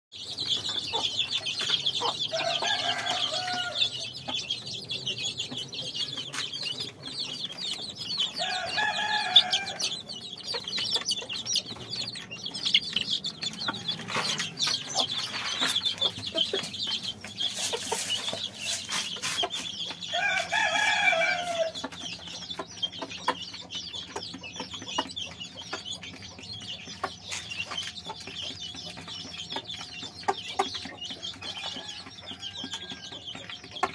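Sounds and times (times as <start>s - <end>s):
chicks peeping: 0.1s - 33.9s
rooster crowing: 2.3s - 3.9s, 8.4s - 9.9s, 20.1s - 21.8s.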